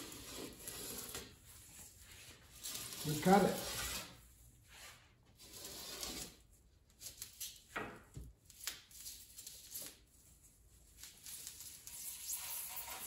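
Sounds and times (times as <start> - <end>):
knife scratching through foam: 0.0 - 1.4, 2.0 - 6.5, 11.3 - 13.0.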